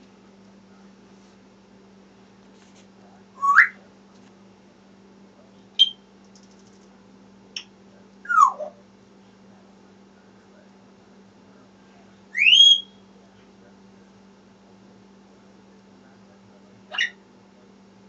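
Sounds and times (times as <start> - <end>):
parrot chirp: 3.4 - 3.8, 5.8 - 6.0, 8.2 - 8.8, 12.4 - 13.0, 16.9 - 17.2
parrot whistling: 3.4 - 3.8, 5.8 - 6.0, 8.3 - 8.8, 12.4 - 13.0, 16.9 - 17.2.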